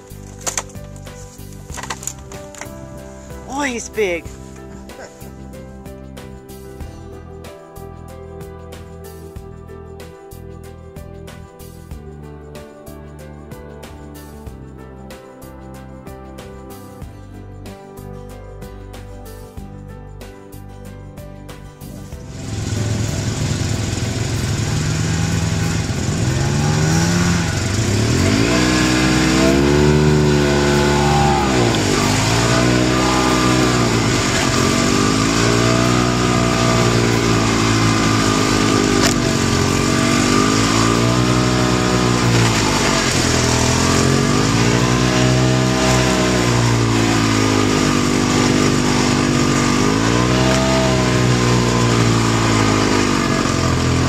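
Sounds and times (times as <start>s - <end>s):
snowmobile engine running: 22.2s - 54.0s.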